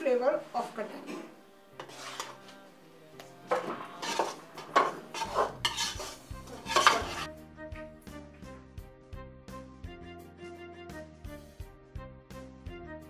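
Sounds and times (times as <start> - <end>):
soft instrumental music: 0.0 - 13.0
metal ladle scraping a pot: 1.8 - 2.6, 3.5 - 7.3.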